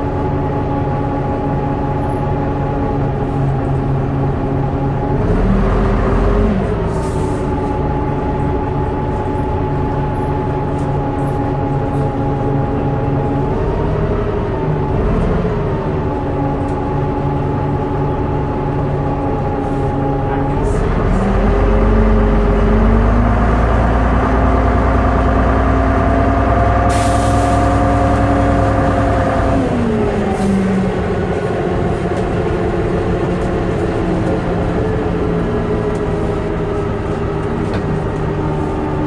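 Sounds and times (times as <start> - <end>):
bus diesel engine running: 0.0 - 39.0
short air hiss: 26.9 - 27.7.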